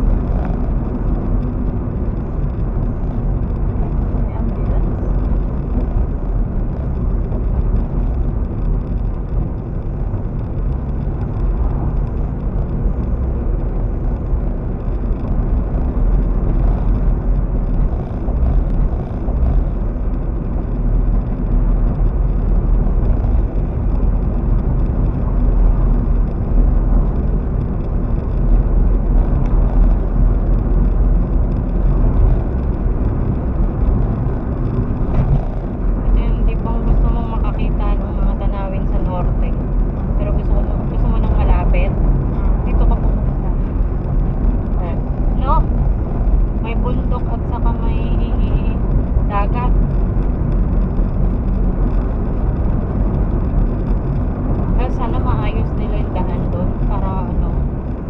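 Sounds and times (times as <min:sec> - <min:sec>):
car engine and tyre rumble: 0:00.0 - 0:58.0.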